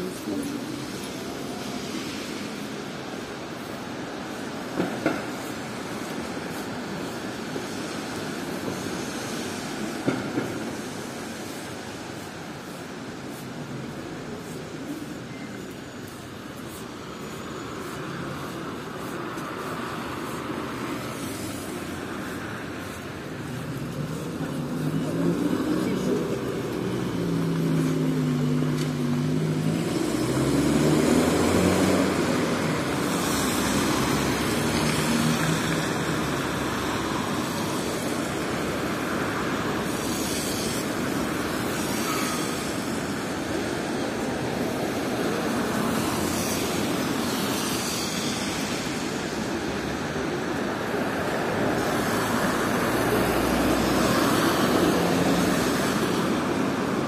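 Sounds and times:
tyres hissing on wet asphalt: 0.0s - 57.0s
vehicle engine passing: 21.1s - 36.8s.

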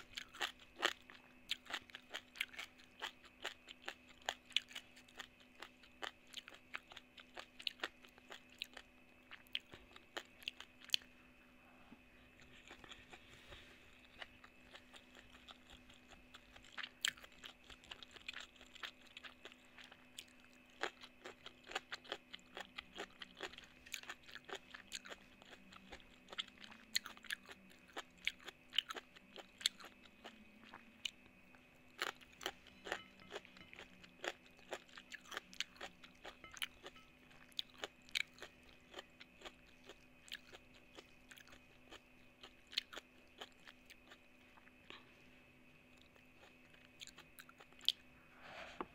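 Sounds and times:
crunching and chewing food: 0.0s - 48.2s
faint hum: 0.0s - 48.9s.

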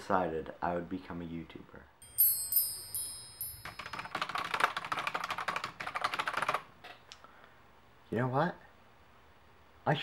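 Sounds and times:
shimmering chime sound effect: 2.0s - 4.2s
typing on computer keyboard: 3.6s - 6.7s.

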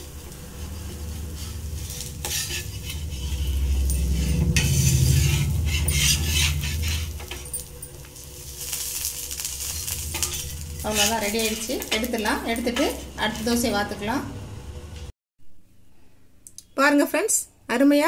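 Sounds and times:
metal spatula scraping griddle: 0.0s - 13.9s
oil sizzling: 0.0s - 14.4s.

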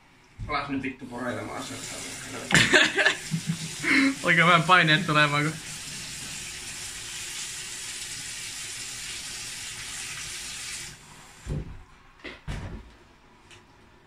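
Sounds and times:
water rushing hiss: 1.1s - 11.5s.

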